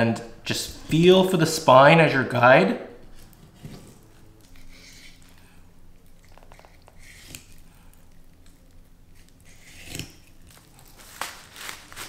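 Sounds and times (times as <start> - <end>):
knife scraping along fish bone: 3.1 - 5.4, 6.2 - 10.6
knife rasp: 3.6 - 5.3, 6.6 - 7.7, 9.2 - 10.3.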